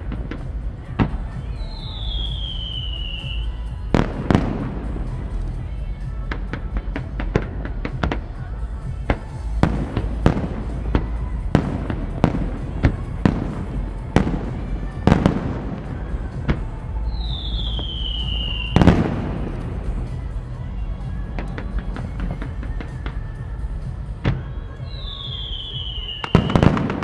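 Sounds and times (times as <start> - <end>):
fireworks bangs: 0.0 - 20.5, 21.1 - 27.0
falling firework whistle: 1.5 - 3.6, 17.1 - 19.2, 24.8 - 27.0.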